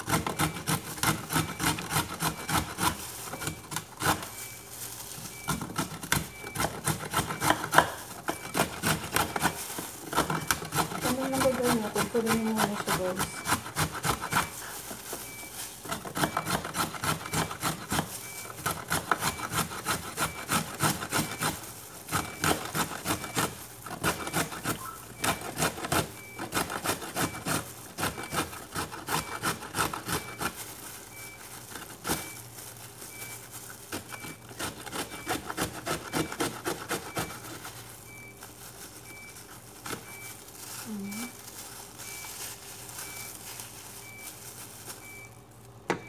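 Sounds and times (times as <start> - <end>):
carrot rasping on metal grater: 0.0 - 3.0, 8.5 - 14.6, 15.9 - 23.3, 23.9 - 30.5, 34.2 - 37.6.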